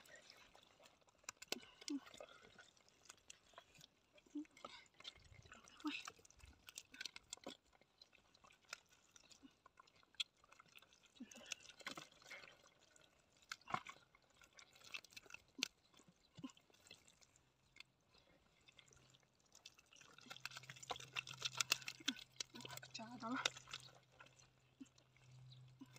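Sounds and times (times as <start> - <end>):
hands digging in wet mud: 19.8 - 24.1.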